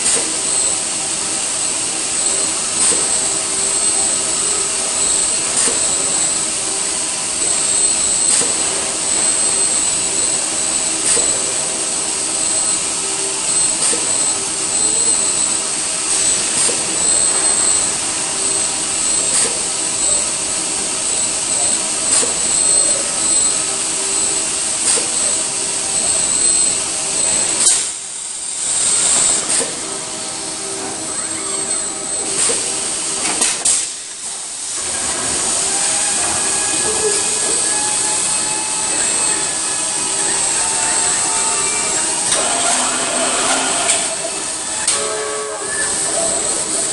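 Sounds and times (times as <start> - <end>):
assembly line machinery noise: 0.0 - 46.9
steady high whine: 0.0 - 46.9
short sharp machine sounds: 34.8 - 46.9.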